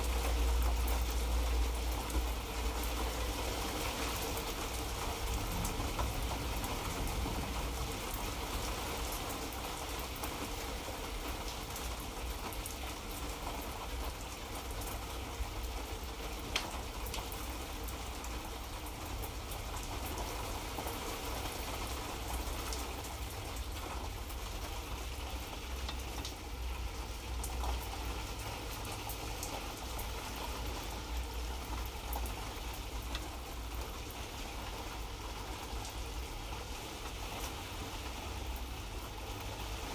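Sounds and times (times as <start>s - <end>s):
light rain hissing: 0.0s - 39.9s
low rumble: 5.2s - 8.5s.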